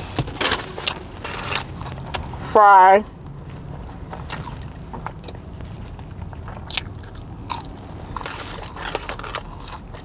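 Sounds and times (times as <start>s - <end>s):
person chewing crisp fries: 0.0s - 2.4s, 4.2s - 10.0s.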